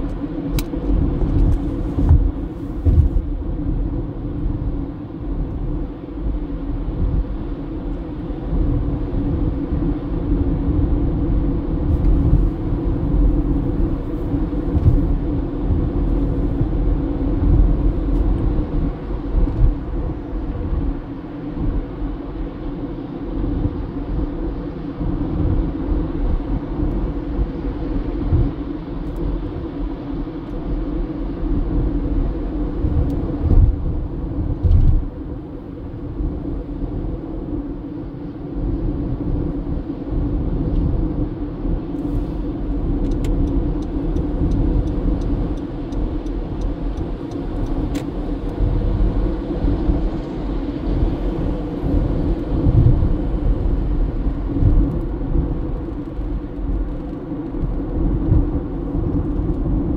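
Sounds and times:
car engine and road noise: 0:00.0 - 0:59.9
light even ticks: 0:43.0 - 0:48.7.

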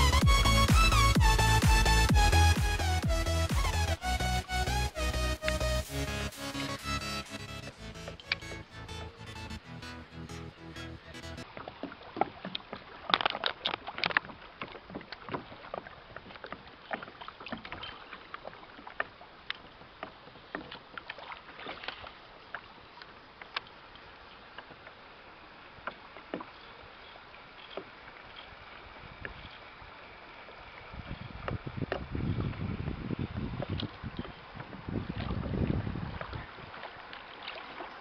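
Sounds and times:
water lapping against kayak hull: 0:00.9 - 0:09.6, 0:11.4 - 0:38.0
small splashes and knocks: 0:11.4 - 0:25.0, 0:25.7 - 0:29.7, 0:33.4 - 0:38.0.

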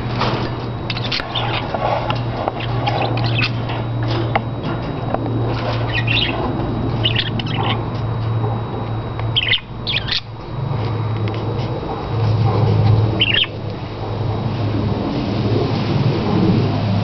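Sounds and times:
steady low hum: 0:00.0 - 0:17.0
budgerigars chirping and squawking: 0:00.9 - 0:04.2, 0:05.5 - 0:07.9, 0:09.3 - 0:10.4, 0:13.2 - 0:13.6.

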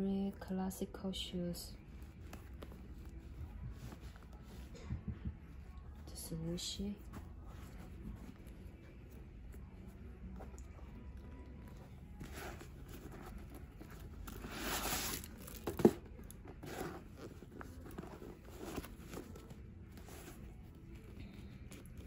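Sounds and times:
paper rustling and crinkling: 0:12.2 - 0:22.0.

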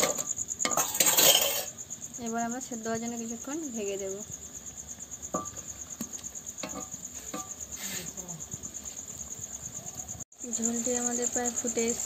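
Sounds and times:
spatula scraping a pan: 0:00.0 - 0:01.8
crickets chirping: 0:00.0 - 0:12.0.

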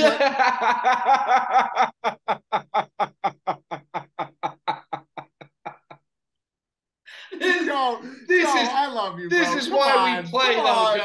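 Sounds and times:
men laughing: 0:00.0 - 0:06.0, 0:07.2 - 0:08.7.

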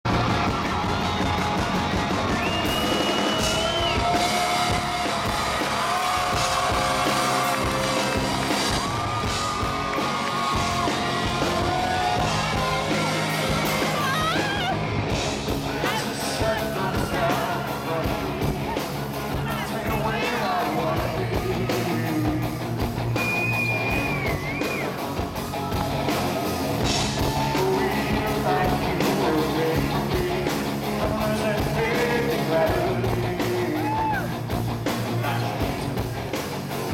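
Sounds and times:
fans screaming: 0:00.1 - 0:29.9, 0:31.4 - 0:34.6
live rock band: 0:00.1 - 0:36.9
man singing: 0:15.6 - 0:22.8, 0:27.2 - 0:36.3.

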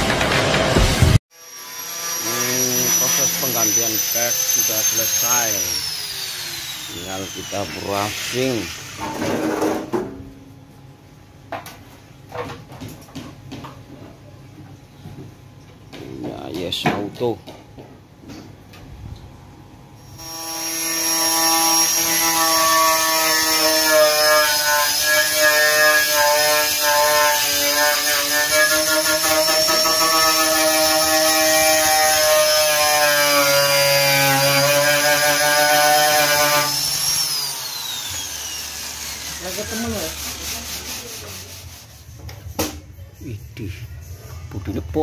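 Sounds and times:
angle grinder on metal: 0:00.0 - 0:09.7, 0:20.0 - 0:41.7.

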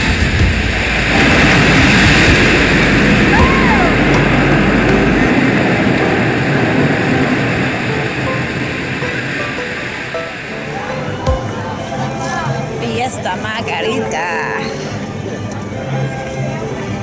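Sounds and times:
deep rumble: 0:00.0 - 0:09.7
dense rushing sound: 0:00.0 - 0:12.2.

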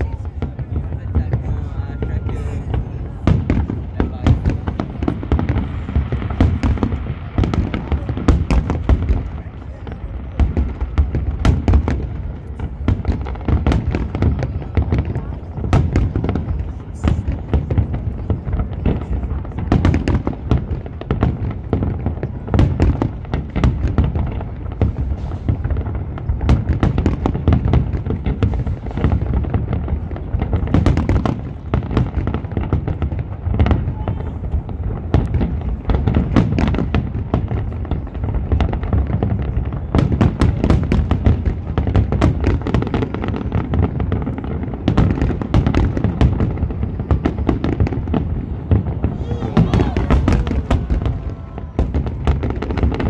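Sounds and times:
fireworks bursting: 0:00.0 - 0:53.0.

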